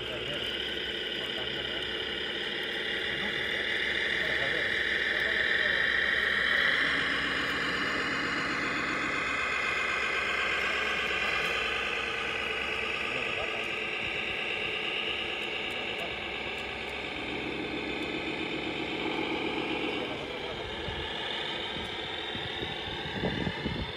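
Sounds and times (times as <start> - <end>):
electric drive and gears whining: 0.0 - 23.9
low engine-like hum: 0.0 - 23.9.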